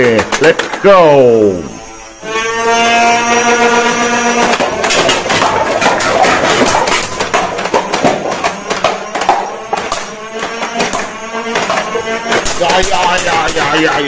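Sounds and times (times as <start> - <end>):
electronic tone: 0.8 - 5.6.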